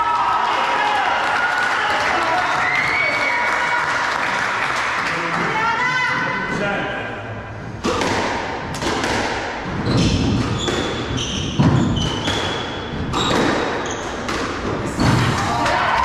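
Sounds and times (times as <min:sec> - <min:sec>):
squash ball cracking off rackets: 0:07.8 - 0:15.8
shoes squeaking on wooden floor: 0:09.8 - 0:15.1.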